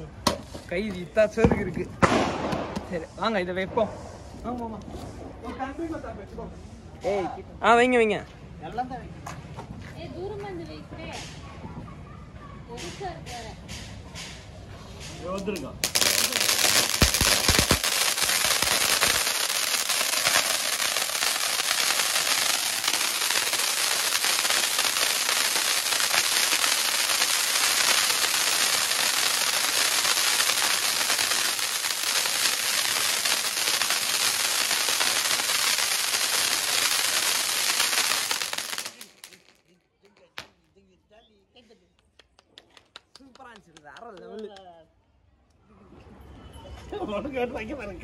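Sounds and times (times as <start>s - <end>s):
firework hissing and crackling: 15.3s - 39.7s.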